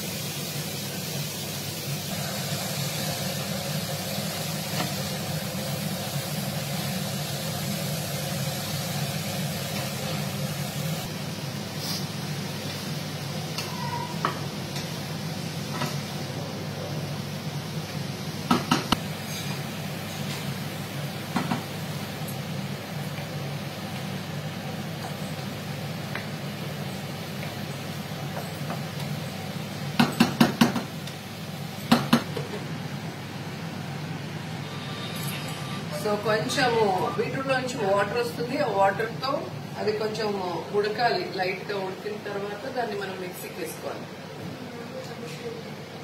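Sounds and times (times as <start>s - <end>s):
vegetables frying in oil: 0.0s - 13.8s.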